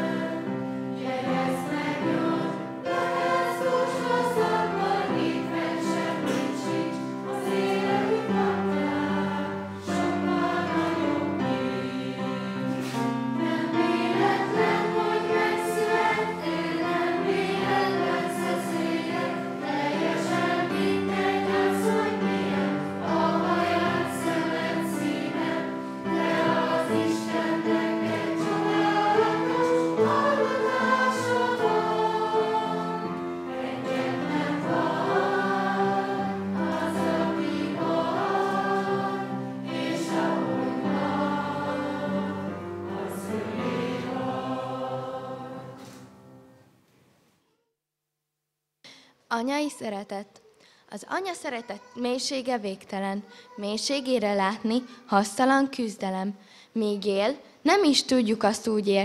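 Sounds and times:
group singing into microphones: 0:00.0 - 0:46.1.

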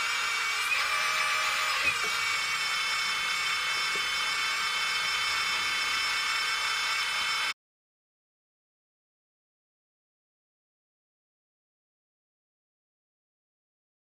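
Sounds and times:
hydraulic pump whining: 0:00.0 - 0:07.6.

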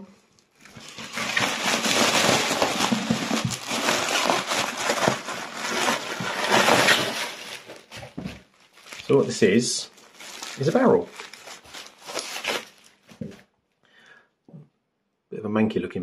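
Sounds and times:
plastic packaging crinkling: 0:00.3 - 0:13.4.

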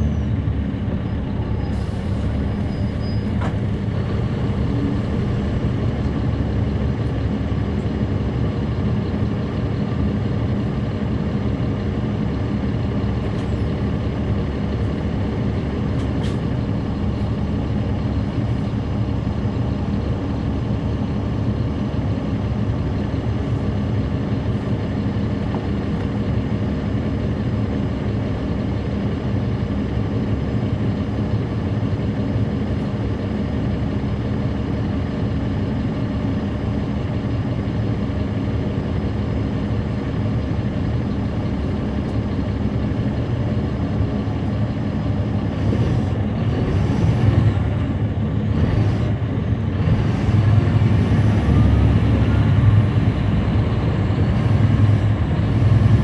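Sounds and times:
bus diesel engine humming: 0:00.0 - 0:56.0.

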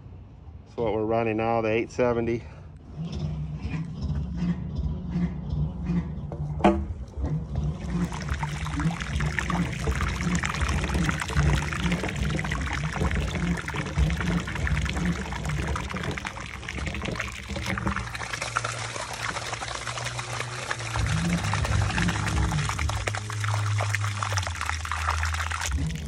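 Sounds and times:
water gushing onto asphalt: 0:07.6 - 0:26.0.

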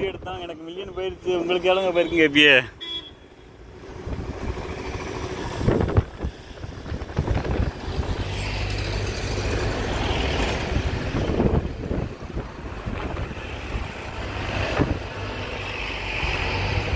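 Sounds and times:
road traffic: 0:00.0 - 0:16.9
vehicles passing: 0:00.0 - 0:16.9
wind on microphone: 0:03.8 - 0:16.9.

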